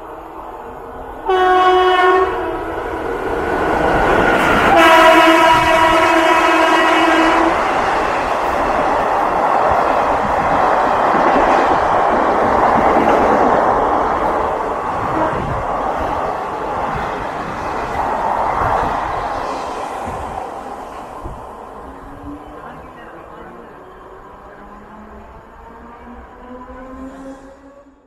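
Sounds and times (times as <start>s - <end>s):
train coaches rushing and rattling: 1.2s - 27.8s
locomotive horn blasts: 1.3s - 2.5s, 4.7s - 7.6s.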